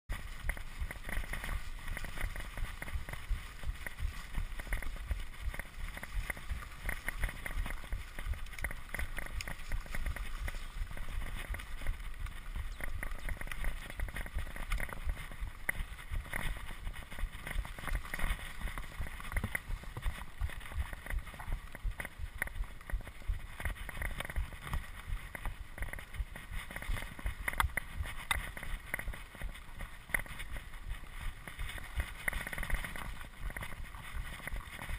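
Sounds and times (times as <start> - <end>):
bike rattles and clicks: 0.1 - 34.9
tyres rumbling on dirt trail: 0.1 - 34.9.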